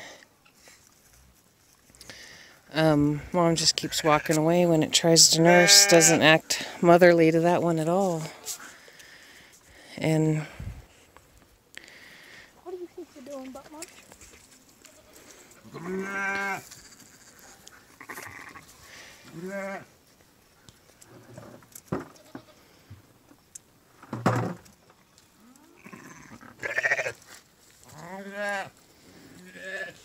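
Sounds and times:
sheep bleating: 5.4s - 6.3s, 14.8s - 18.7s, 19.3s - 19.9s, 25.6s - 27.2s, 27.9s - 28.7s, 29.4s - 30.0s.

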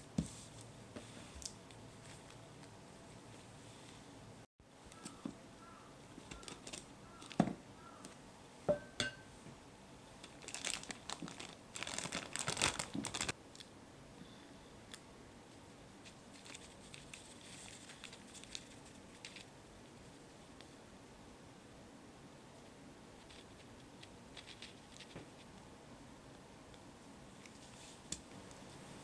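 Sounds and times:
plastic bag crinkling: 10.2s - 13.4s, 16.3s - 19.5s.

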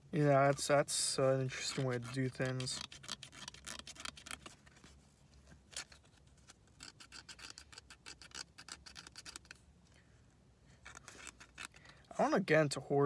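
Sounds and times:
scratching on lottery ticket: 1.5s - 5.0s, 6.6s - 9.6s, 10.8s - 11.7s.

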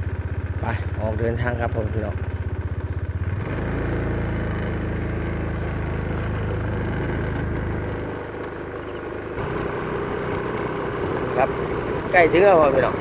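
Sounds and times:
small motorcycle engine running: 0.0s - 13.0s
faint high beep: 5.2s - 11.5s.

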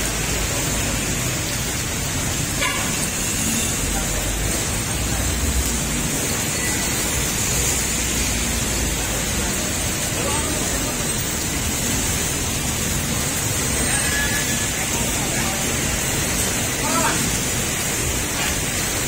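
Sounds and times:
heavy rain falling: 0.0s - 19.0s
tyres hissing on wet road: 0.0s - 19.0s.

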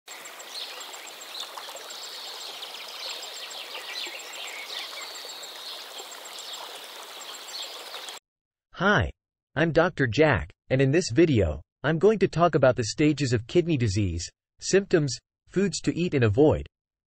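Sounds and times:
birds chirping: 0.1s - 8.2s
steady running water hiss: 0.1s - 8.2s.

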